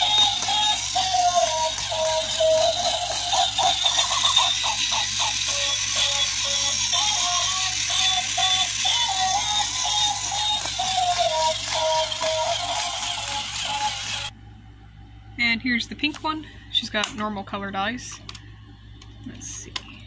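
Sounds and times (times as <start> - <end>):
toy melody of single notes: 0.0 - 14.3.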